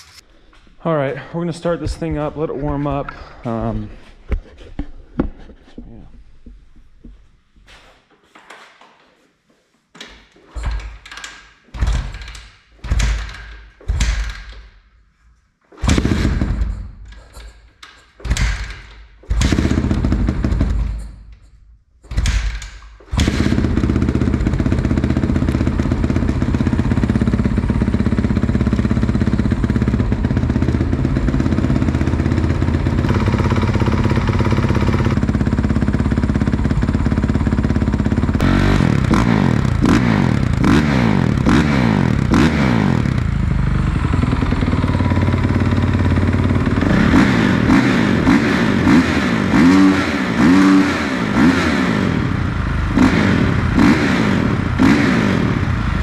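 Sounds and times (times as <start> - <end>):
dirt bike engine starting attempts: 15.7 - 56.0
dirt bike engine idling: 19.4 - 21.1, 23.1 - 56.0.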